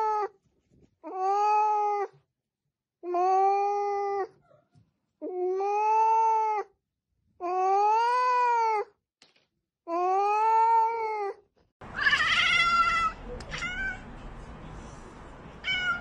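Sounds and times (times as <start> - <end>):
cat meowing: 10.3 - 14.1, 15.6 - 16.0.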